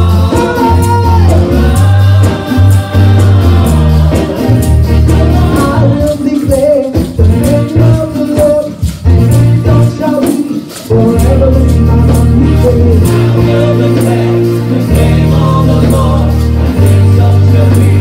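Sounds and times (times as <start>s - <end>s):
heavy bass line: 0.0s - 6.1s, 11.0s - 18.0s
voices singing: 0.0s - 8.6s, 9.3s - 18.0s
drums: 0.0s - 18.0s
tambourine: 0.0s - 18.0s.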